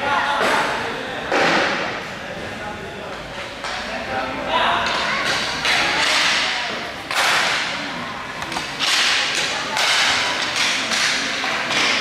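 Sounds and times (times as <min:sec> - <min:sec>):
hockey sticks cracking puck: 0:04.8 - 0:12.0.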